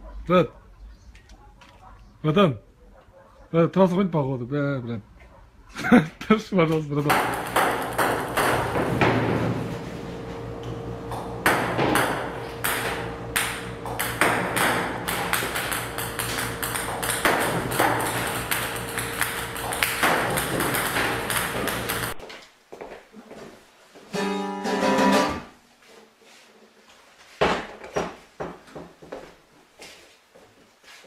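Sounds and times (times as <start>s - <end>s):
table tennis balls bouncing: 7.1s - 9.8s, 10.6s - 22.2s
steady hum: 7.1s - 22.2s.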